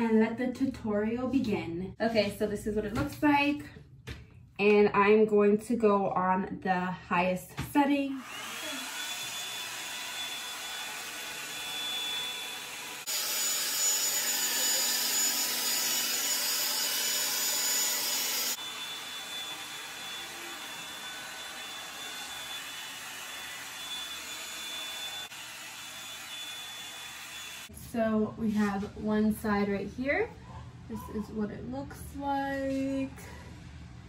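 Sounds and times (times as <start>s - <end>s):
hot-air brush dryer blowing: 7.8s - 27.8s.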